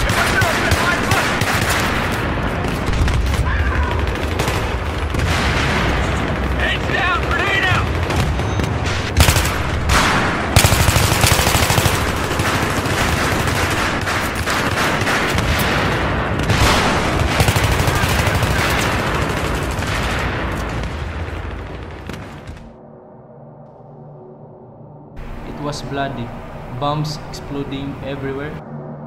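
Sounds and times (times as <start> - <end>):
heavy explosions: 0.0 - 22.8
machine-gun bursts: 17.1 - 19.9.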